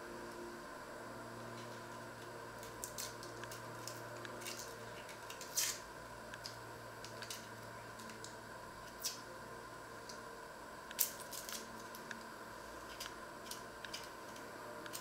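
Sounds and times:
low steady hum: 0.0 - 15.0
onion skins crackling and tearing: 2.6 - 9.2.

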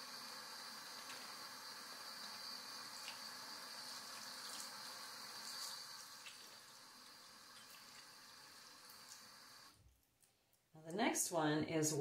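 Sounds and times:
faucet water splashing into sink: 0.8 - 9.7.

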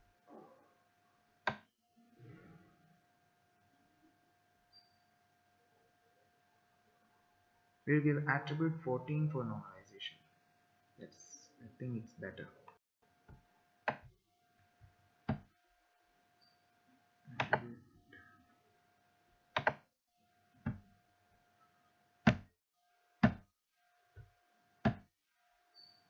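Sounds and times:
computer mouse clicks: 19.6 - 19.8.

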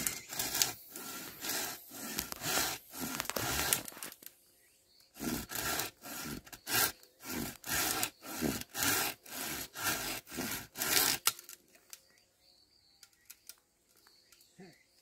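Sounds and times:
hand saw cutting bamboo: 0.0 - 4.1, 5.2 - 11.4.

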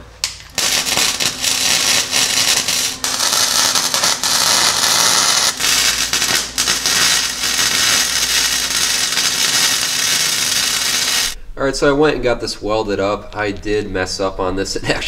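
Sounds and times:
welding arc crackling: 0.2 - 11.4.

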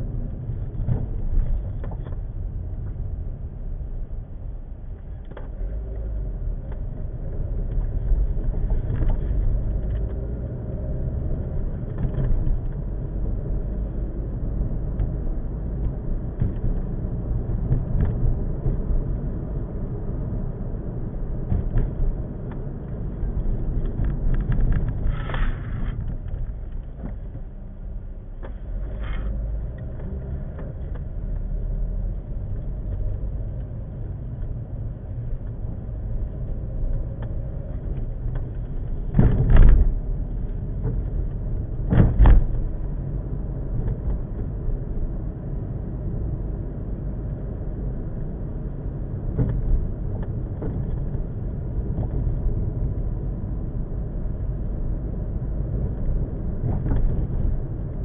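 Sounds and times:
car road and engine rumble: 0.0 - 58.0
car thumping over bumps: 0.1 - 3.1, 10.9 - 27.6, 32.7 - 45.2, 49.1 - 58.0.

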